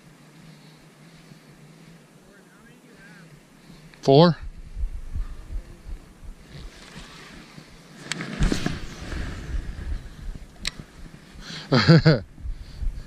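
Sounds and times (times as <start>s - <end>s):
wind buffeting microphone: 4.2s - 7.0s, 8.4s - 11.4s, 12.2s - 13.0s.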